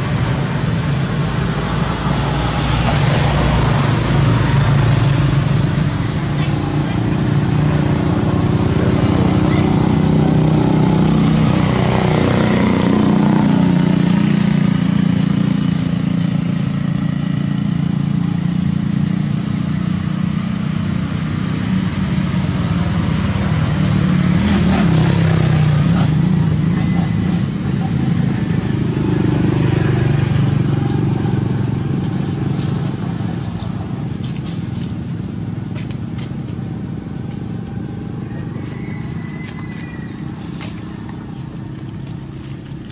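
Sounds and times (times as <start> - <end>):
motor engine droning: 0.0 - 42.9.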